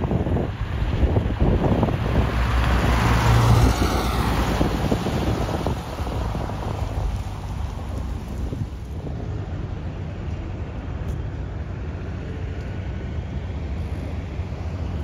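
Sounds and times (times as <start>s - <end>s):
car driving past: 2.0s - 8.9s.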